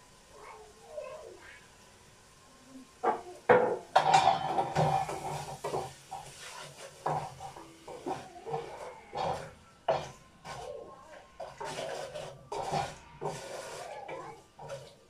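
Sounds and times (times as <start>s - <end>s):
wooden spoon knocking on pot: 3.0s - 6.0s, 7.0s - 10.6s
spoon scraping and clattering in pot: 3.7s - 15.0s.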